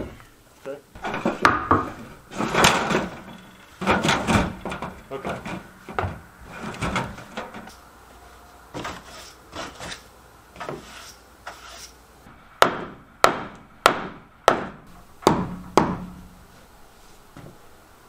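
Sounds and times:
hammer striking wood: 0:01.0 - 0:02.9, 0:12.6 - 0:16.3
broom sweeping floor: 0:07.6 - 0:12.0, 0:16.4 - 0:17.7.

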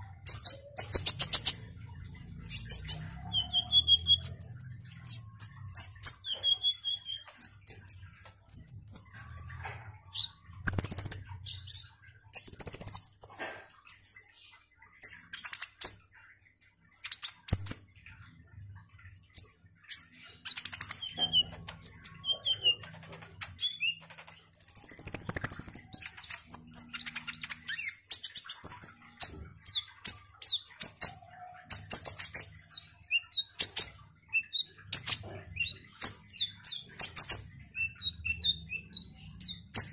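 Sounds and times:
sunbird singing: 0:23.7 - 0:29.0.

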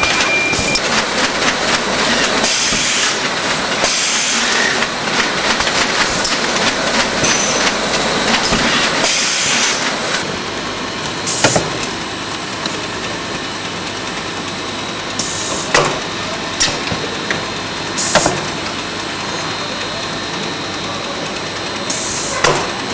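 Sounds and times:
sharp mechanical clacks: 0:00.0 - 0:10.2
machinery clattering: 0:00.0 - 0:10.3.

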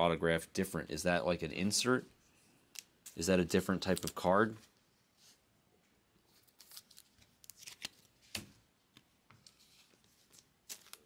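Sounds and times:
plastic sleeves rustling: 0:01.8 - 0:05.4, 0:06.2 - 0:11.0.

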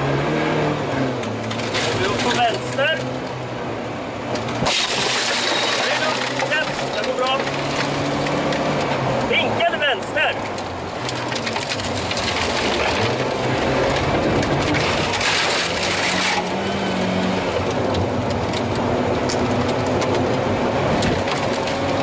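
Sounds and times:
car engine revving hard: 0:00.0 - 0:03.2, 0:11.2 - 0:22.0
gravel crunching under tyres: 0:01.1 - 0:03.4, 0:04.3 - 0:22.0
gravel pinging against underside: 0:01.2 - 0:03.4, 0:04.3 - 0:22.0.

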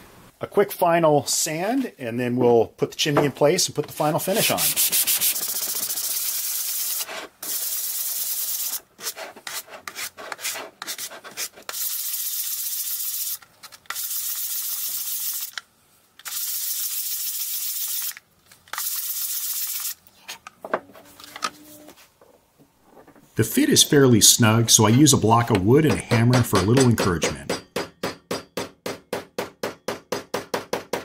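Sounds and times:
sandpaper rasping over wood: 0:04.3 - 0:15.5.

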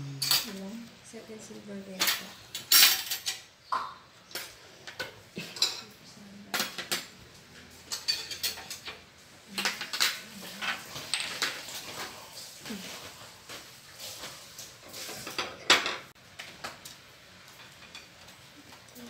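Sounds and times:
metal cutlery clinking: 0:02.0 - 0:03.5, 0:04.3 - 0:12.1.

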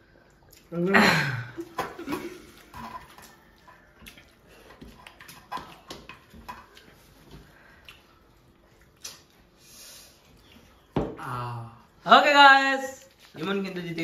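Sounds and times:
chewing and mouth noises: 0:00.0 - 0:00.8, 0:02.4 - 0:09.6.

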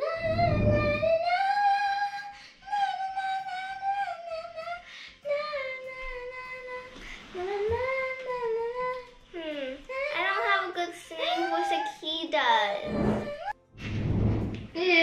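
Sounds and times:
child singing high notes: 0:07.9 - 0:13.6.

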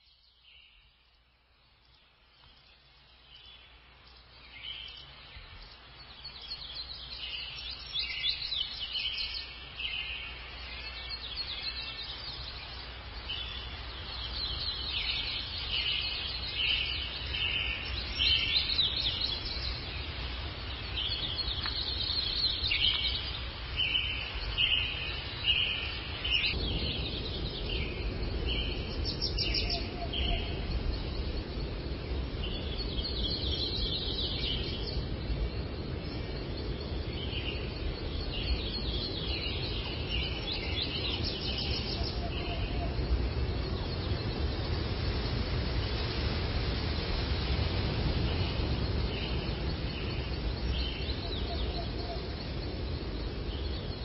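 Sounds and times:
songbirds chirping: 0:00.0 - 0:54.0
steady low rumble: 0:26.0 - 0:54.0.

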